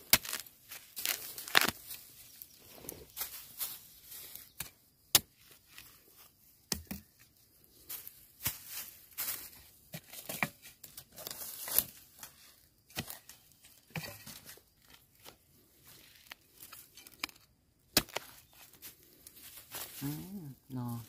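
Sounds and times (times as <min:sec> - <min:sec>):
foliage rustling: 0:00.0 - 0:04.6
plant stems snapping: 0:01.0 - 0:02.0.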